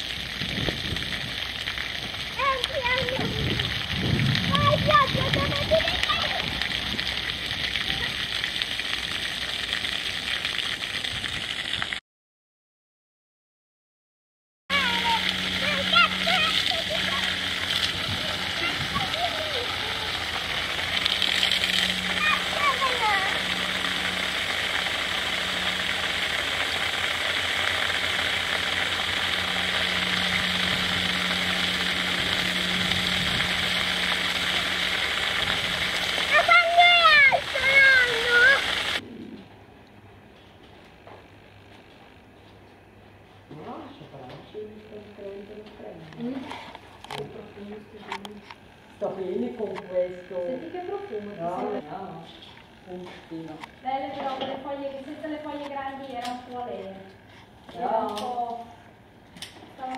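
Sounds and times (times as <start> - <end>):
hose water jet hitting grass: 0.0 - 12.0, 14.7 - 39.0
low steady hum: 14.7 - 59.9.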